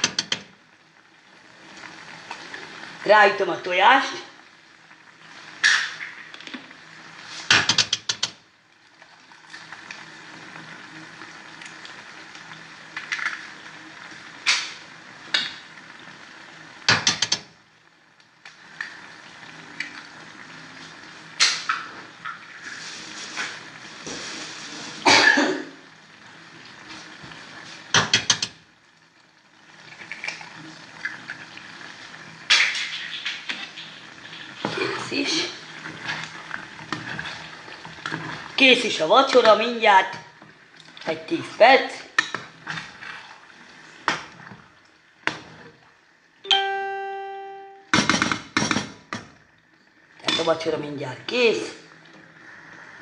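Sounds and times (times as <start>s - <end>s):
gas flame hiss: 20.8s - 25.9s
person coughing: 25.0s - 25.8s.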